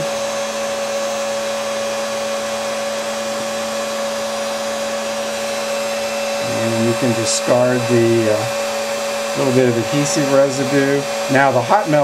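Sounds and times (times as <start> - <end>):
heat gun blowing air: 0.0 - 12.0.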